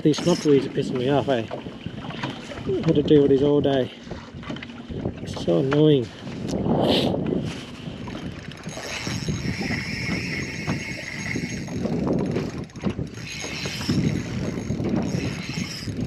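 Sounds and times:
fishing reel whirring: 0:00.0 - 0:01.4, 0:08.0 - 0:16.0
wind noise on microphone: 0:00.0 - 0:16.0.

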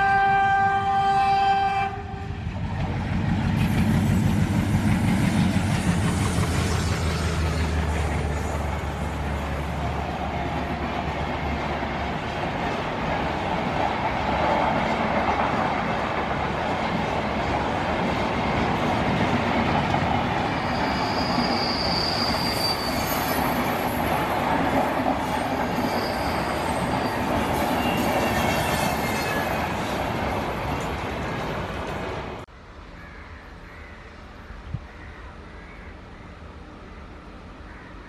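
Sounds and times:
train wheels rumbling on rails: 0:02.1 - 0:32.5
high wheel squeal: 0:20.4 - 0:24.3, 0:25.2 - 0:30.0.

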